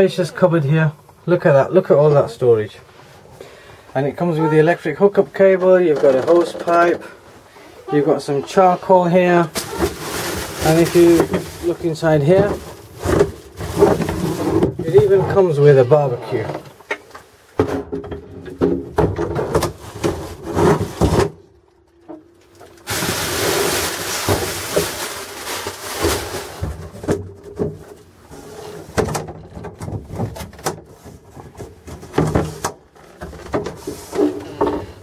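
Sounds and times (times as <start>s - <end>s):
rustling: 2.8s - 17.6s, 22.4s - 29.0s.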